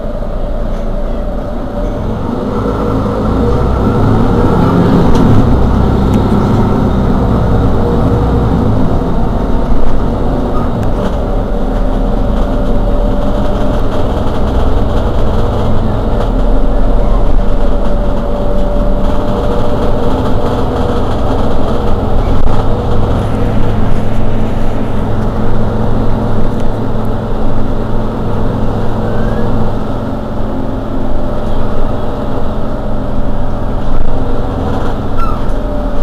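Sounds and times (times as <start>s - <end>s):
bus diesel engine idling: 0.0s - 36.0s
thin steady whine: 22.2s - 29.8s.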